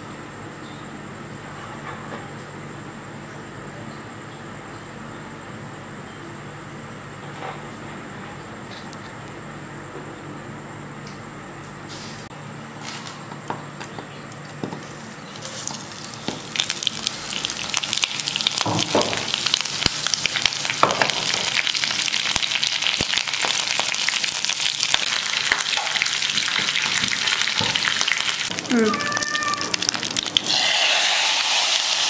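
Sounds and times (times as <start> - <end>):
leaves frying in crackling oil: 12.8 - 13.2, 14.3 - 32.0.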